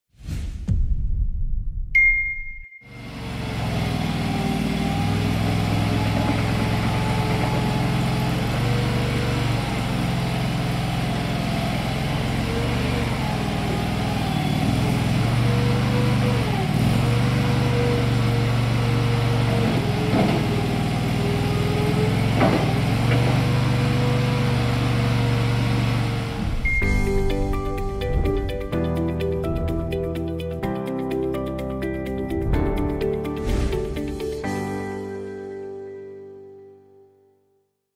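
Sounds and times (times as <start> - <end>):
skid steer engine running: 2.9 - 33.3.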